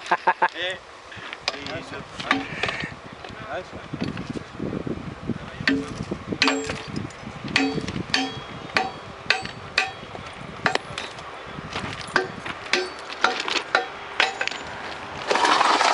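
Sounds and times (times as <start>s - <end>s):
hammer striking steel rail: 5.7s - 6.9s, 7.6s - 10.1s, 12.2s - 14.7s.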